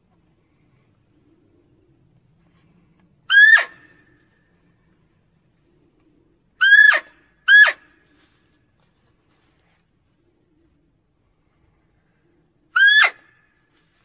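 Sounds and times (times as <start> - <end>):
deer barking: 3.3 - 3.9, 6.6 - 7.9.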